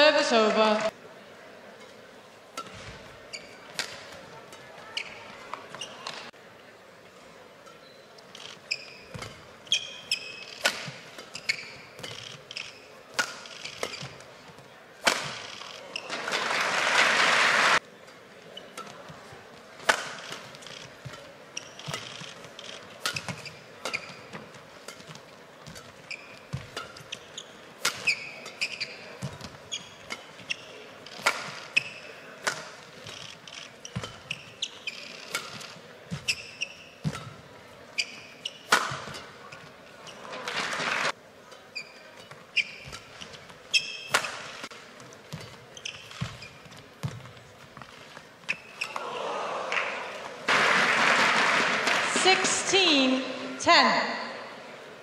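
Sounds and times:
racket hitting shuttlecock: 0:02.5 - 0:06.2, 0:08.7 - 0:16.5, 0:18.6 - 0:19.2, 0:19.8 - 0:39.7, 0:42.2 - 0:49.1
shoes squeaking on court: 0:02.6 - 0:06.4, 0:07.7 - 0:16.8, 0:18.0 - 0:49.0
crowd applause: 0:16.1 - 0:17.8, 0:40.5 - 0:41.1, 0:49.0 - 0:52.2.

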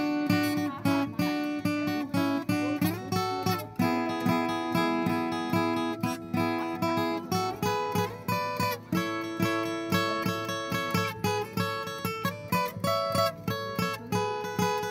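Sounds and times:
acoustic guitar strumming: 0:00.0 - 0:14.9.

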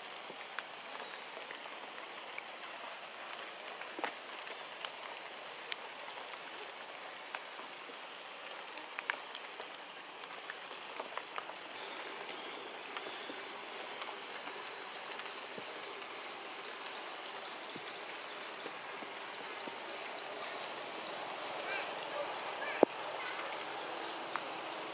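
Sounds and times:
forest hiss: 0:00.0 - 0:24.9
small sharp ticks and clicks: 0:08.4 - 0:20.2.

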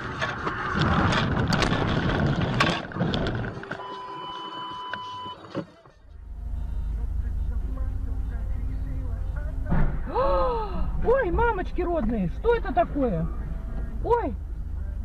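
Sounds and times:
low engine drone: 0:06.0 - 0:15.0.

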